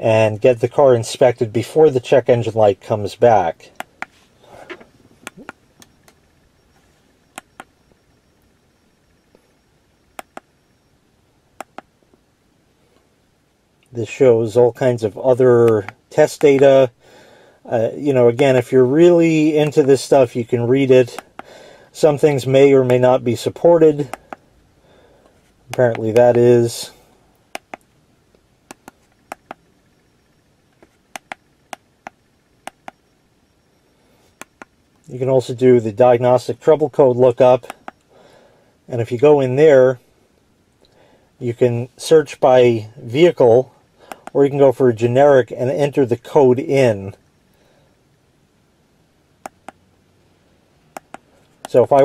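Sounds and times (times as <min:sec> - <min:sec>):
buttons clicking: 0:07.3 - 0:07.8, 0:10.2 - 0:10.5, 0:11.6 - 0:11.9, 0:28.7 - 0:29.6, 0:30.8 - 0:33.0, 0:34.4 - 0:34.7, 0:44.1 - 0:44.4.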